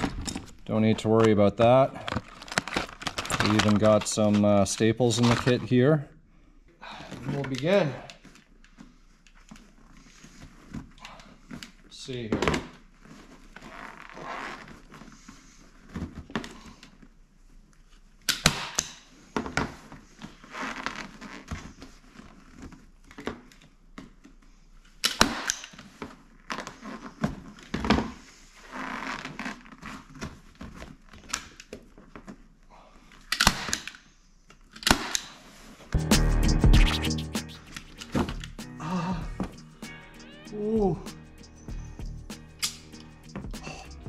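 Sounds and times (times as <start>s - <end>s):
vinyl cover rustling: 2.0s - 4.4s.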